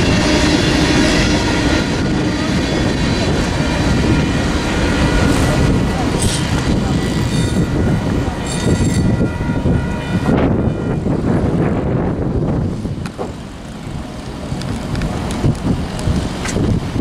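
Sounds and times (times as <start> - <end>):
crossing warning bell ringing: 0.0 - 11.4
freight train rumbling: 0.0 - 17.0.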